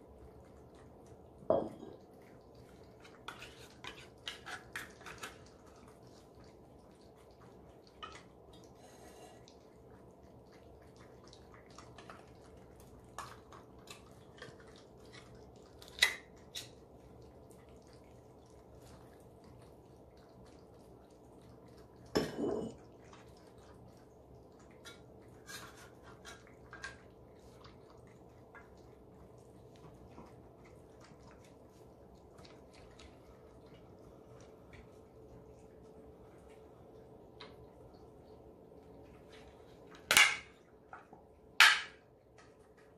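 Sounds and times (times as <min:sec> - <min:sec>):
cats chewing and licking: 0:00.0 - 0:42.9
faint steady hum: 0:00.0 - 0:42.9
knocks against a bowl: 0:01.5 - 0:02.0.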